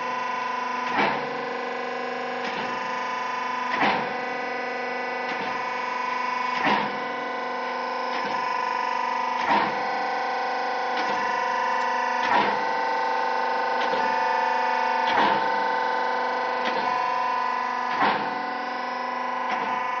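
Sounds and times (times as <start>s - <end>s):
hydraulic unit humming whine: 0.0s - 20.0s
cutting press knocking: 0.8s - 1.6s, 3.7s - 4.3s, 5.2s - 5.7s, 6.4s - 20.0s.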